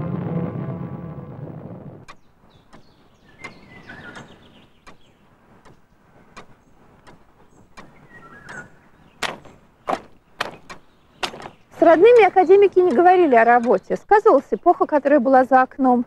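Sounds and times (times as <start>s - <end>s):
deep rumble: 0.0s - 2.1s
sharp evenly spaced clicks: 2.0s - 14.5s.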